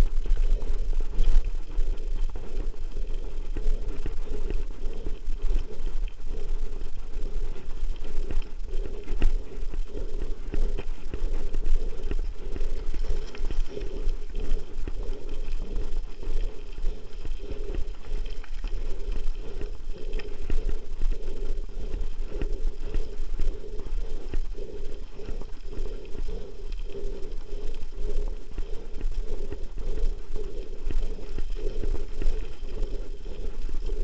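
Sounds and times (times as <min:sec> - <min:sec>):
low rumble: 0:00.0 - 0:34.0.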